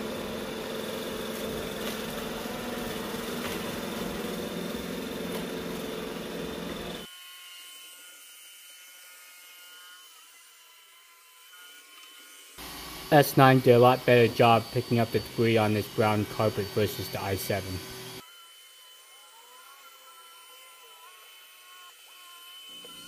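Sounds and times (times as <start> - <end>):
robot vacuum whirring: 0.0 - 23.0
robot vacuum thin whine: 9.5 - 23.0.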